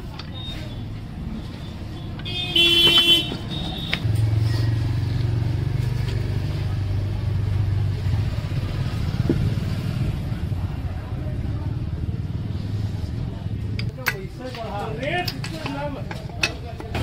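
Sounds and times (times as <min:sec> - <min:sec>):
vehicle horn: 0:02.2 - 0:04.0.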